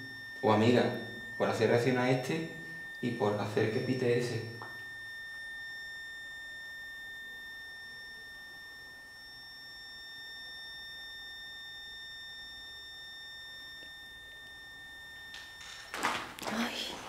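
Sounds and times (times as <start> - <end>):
high-pitched electronic tone: 0.0 - 6.6.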